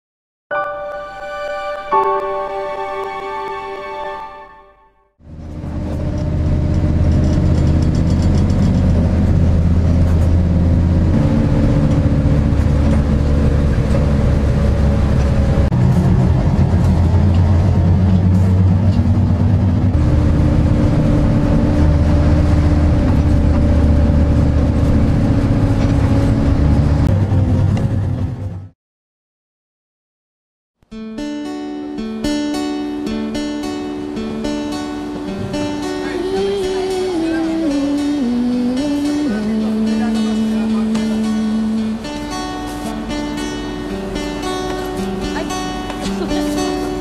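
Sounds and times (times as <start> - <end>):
bus engine drone: 0.5 - 28.8, 33.3 - 47.0
road noise: 5.2 - 28.8, 33.6 - 47.0.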